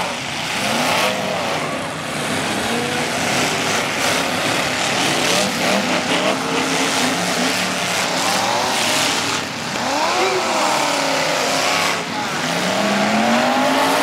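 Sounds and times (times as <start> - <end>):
race car engines revving: 0.0 - 14.0.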